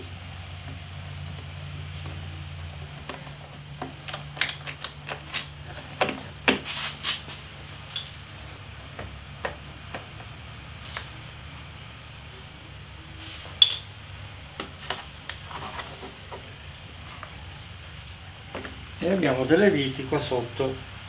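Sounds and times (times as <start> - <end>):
tools and plastic panels clinking: 2.8 - 6.6.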